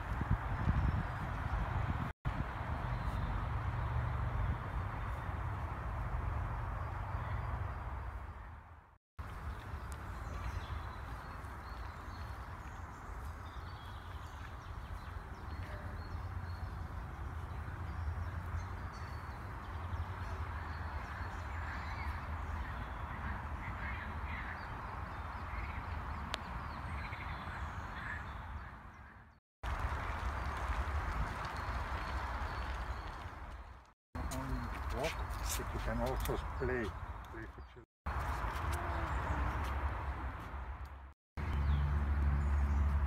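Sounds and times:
wind on microphone: 0.0 - 2.9.

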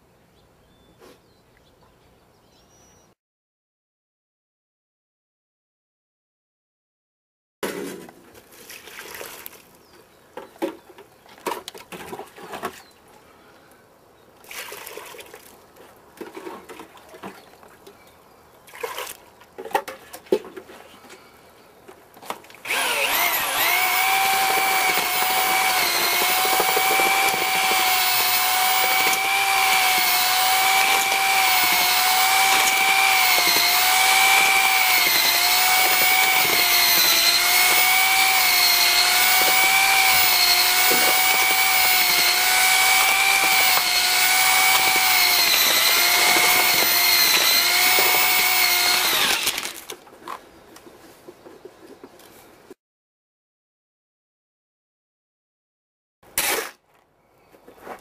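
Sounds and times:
pouring and handling at a plastic bucket: 7.7 - 9.8
electric drill mixing mortar: 22.6 - 49.9.

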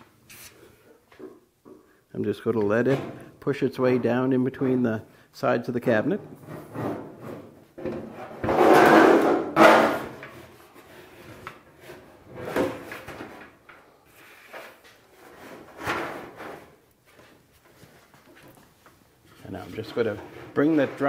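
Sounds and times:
metal dryer drum scraping: 6.3 - 10.2, 19.4 - 21.0.

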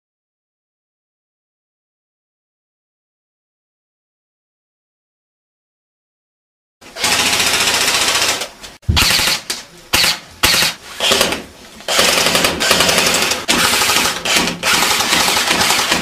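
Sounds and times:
airsoft guns firing full auto: 7.0 - 16.0.

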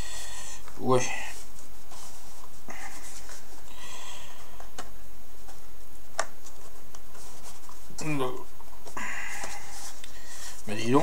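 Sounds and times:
cardboard rustling and scraping: 1.2 - 4.8, 6.4 - 11.0.

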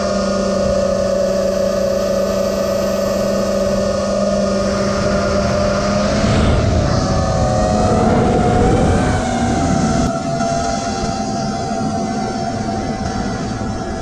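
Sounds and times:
quadcopter motors whining: 0.0 - 14.0.

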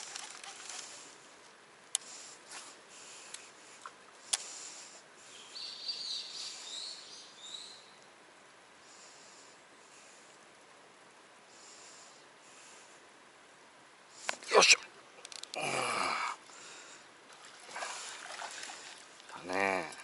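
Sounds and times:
bird chirping: 5.3 - 8.0.

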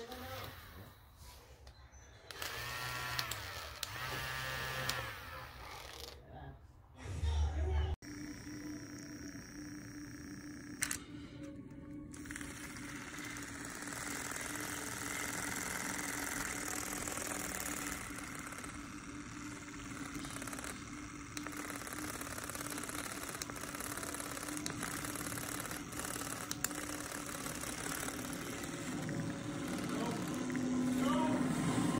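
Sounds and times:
milk frother motor humming: 0.0 - 1.3, 2.3 - 6.2, 8.0 - 31.9.

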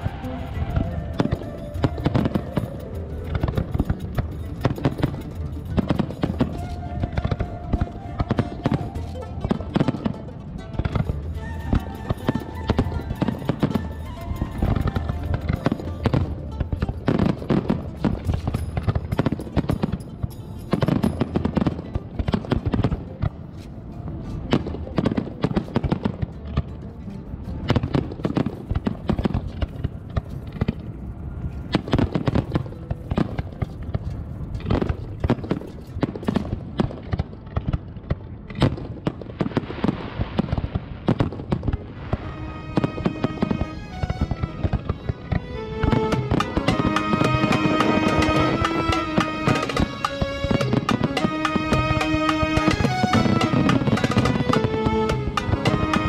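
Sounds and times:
fireworks bangs and crackles: 0.0 - 23.8, 24.4 - 26.8, 27.6 - 56.0
music playing: 0.0 - 29.6, 41.9 - 56.0.

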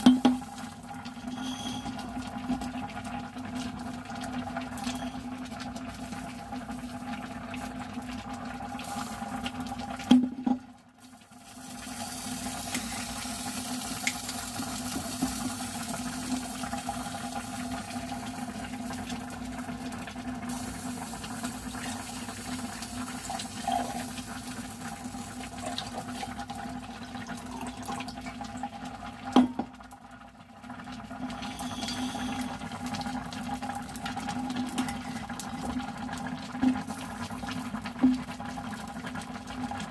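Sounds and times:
pot boiling: 0.0 - 39.9
wine pouring into a glass: 23.2 - 24.2, 27.4 - 28.2.

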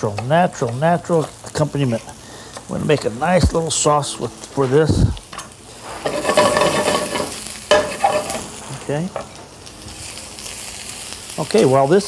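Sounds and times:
vegetables sizzling in hot oil: 0.0 - 12.0
utensil stirring in pan: 5.7 - 8.6.

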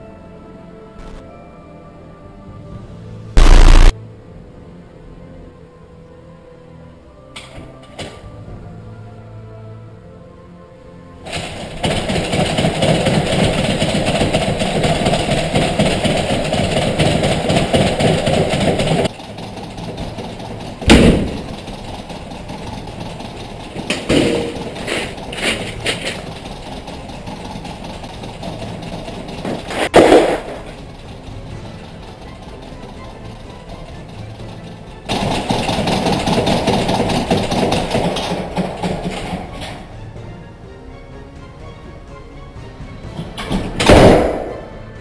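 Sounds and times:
loud bangs and clattering knocks: 3.4 - 3.9, 11.3 - 39.9, 43.0 - 44.8
steady rumbling: 3.4 - 3.9, 15.7 - 38.8.

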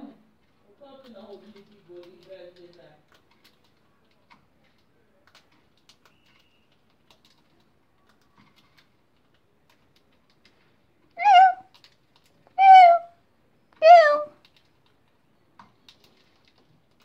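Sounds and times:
faint small clicks: 1.6 - 12.5
faint high tone: 11.2 - 11.6, 12.6 - 13.1, 13.8 - 14.4.

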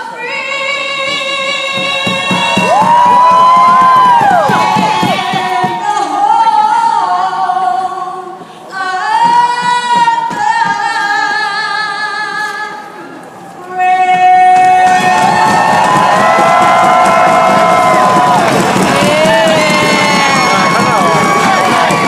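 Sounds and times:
woman singing long held notes: 13.6 - 15.8, 17.6 - 20.7.

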